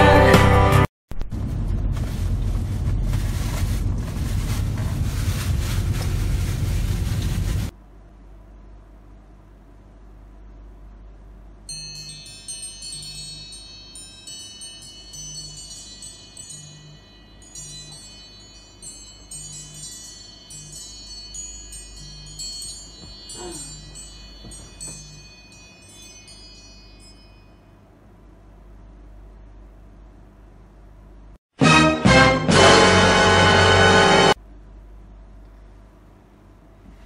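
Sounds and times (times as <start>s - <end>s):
low steady hum: 1.1s - 31.4s, 34.3s - 37.0s
wind chimes tinkling: 11.7s - 28.0s.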